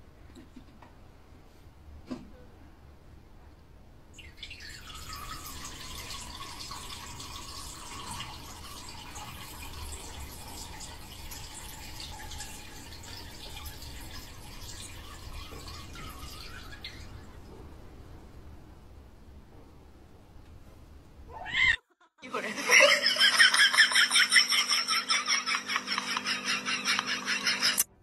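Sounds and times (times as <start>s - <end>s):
trickle of liquid into tray: 4.2s - 17.5s.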